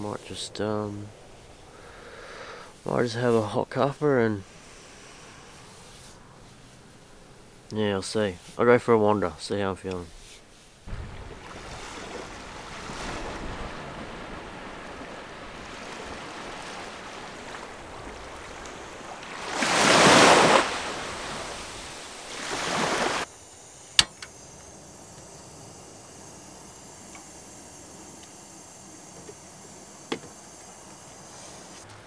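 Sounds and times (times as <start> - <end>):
small waves washing on sand: 10.0 - 23.3
surf breaking: 10.9 - 32.0
sharp click: 23.9 - 24.4.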